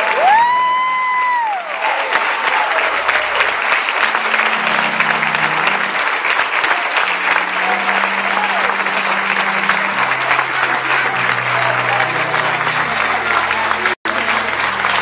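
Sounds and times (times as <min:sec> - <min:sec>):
congregation applauding: 0:00.0 - 0:15.0.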